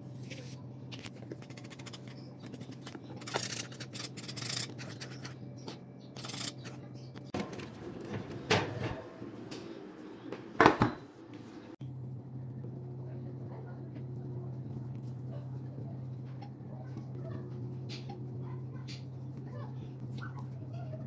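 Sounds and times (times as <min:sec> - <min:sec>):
whisk scraping metal pot: 0:01.3 - 0:05.4, 0:06.2 - 0:07.0.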